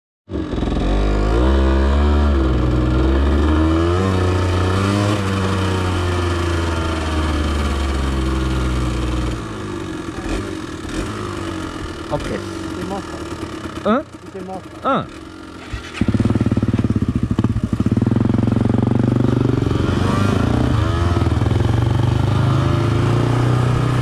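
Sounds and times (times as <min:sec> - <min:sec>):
motorcycle engine revving: 0:00.3 - 0:24.0.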